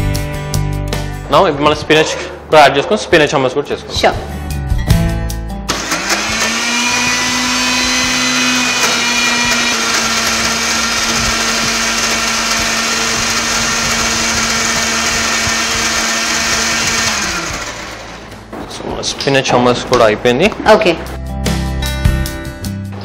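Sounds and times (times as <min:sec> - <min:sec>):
mixer-grinder motor whining: 0:05.7 - 0:18.5.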